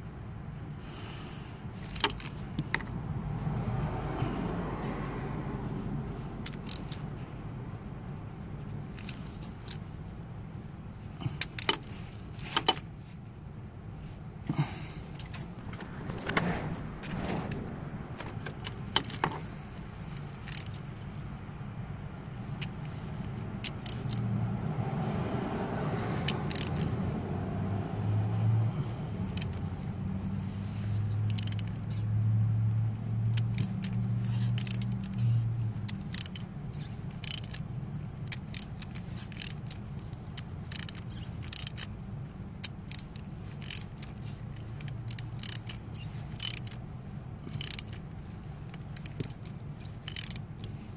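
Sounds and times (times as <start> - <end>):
socket ratchet clicking: 1.8 - 3.5, 6.4 - 7.0, 20.0 - 21.2, 22.4 - 24.3, 26.2 - 27.0, 29.2 - 29.7, 30.9 - 46.8, 47.4 - 50.9
low hum: 15.1 - 20.2.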